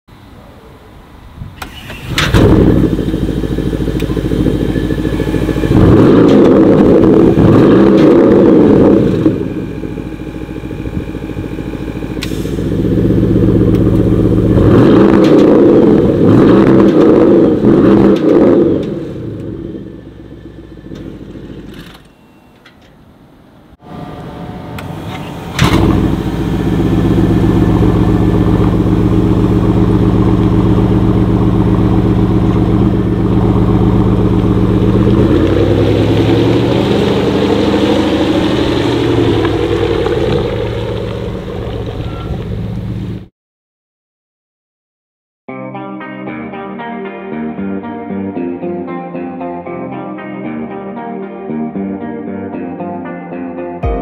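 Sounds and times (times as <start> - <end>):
car engine revving and idling: 1.6 - 21.7, 23.8 - 43.3.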